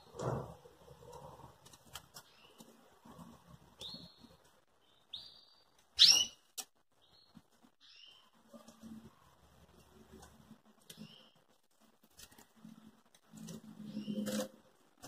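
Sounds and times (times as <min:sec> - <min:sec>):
bird chirps: 0:03.8 - 0:08.4, 0:13.8 - 0:14.5.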